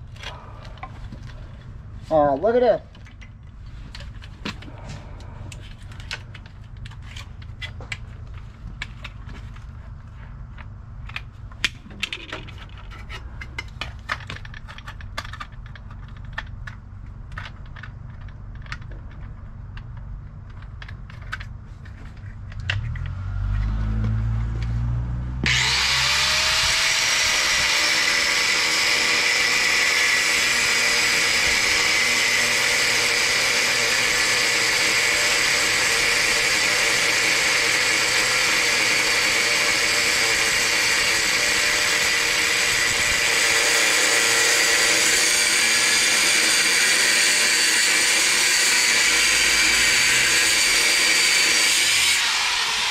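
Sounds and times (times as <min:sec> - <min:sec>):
angle grinder cutting steel: 0:22.7 - 0:52.9.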